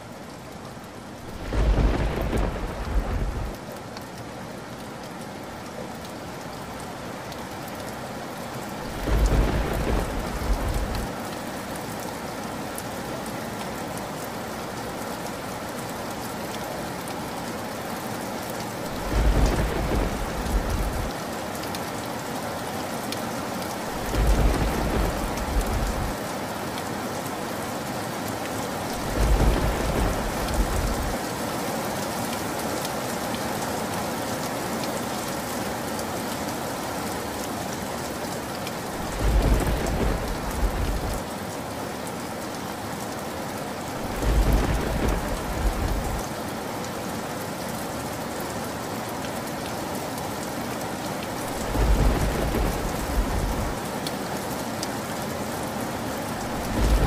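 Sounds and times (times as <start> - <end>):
steady rain: 0.0 - 57.0
low thunder rolls: 1.3 - 3.6, 8.9 - 11.1, 18.9 - 21.1, 24.0 - 26.2, 29.0 - 31.2, 39.0 - 41.2, 44.0 - 46.2, 51.5 - 53.8, 56.5 - 57.0.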